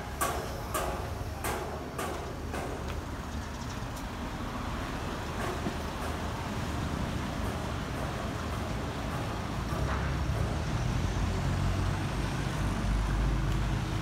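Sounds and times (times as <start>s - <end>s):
street traffic hum: 0.0s - 14.0s
footsteps on wet pavement: 1.5s - 14.0s.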